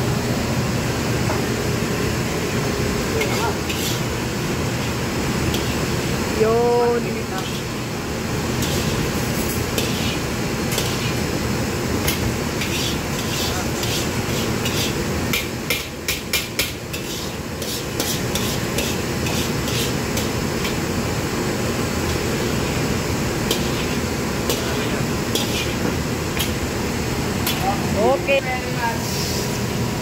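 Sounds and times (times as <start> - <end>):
metal ladle scraping a wok: 3.2 - 4.1, 8.6 - 11.2, 12.1 - 15.0, 16.9 - 20.0, 23.5 - 26.5.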